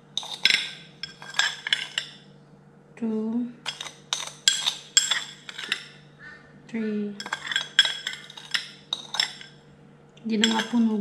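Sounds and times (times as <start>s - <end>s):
metal spoon clinking in container: 0.1s - 2.2s, 3.6s - 6.0s, 7.2s - 9.6s, 10.4s - 11.0s.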